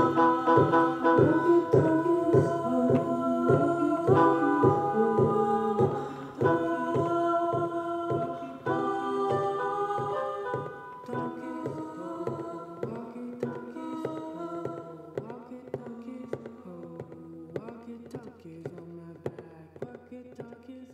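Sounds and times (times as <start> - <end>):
upbeat electronic pop music: 0.0 - 13.7.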